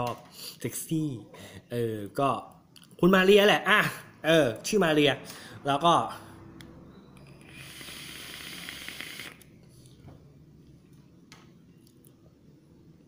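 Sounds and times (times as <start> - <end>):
vape coil hissing: 7.4 - 9.4.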